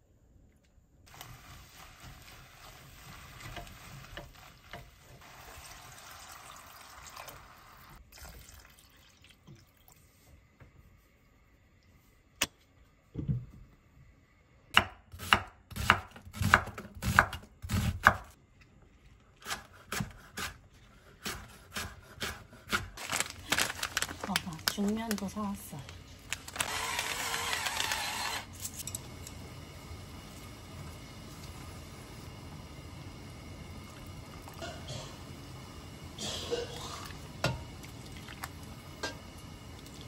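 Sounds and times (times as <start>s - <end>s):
water running: 1.1s - 10.3s, 36.5s - 40.0s
knife chopping on cutting board: 19.4s - 20.6s, 21.2s - 22.9s.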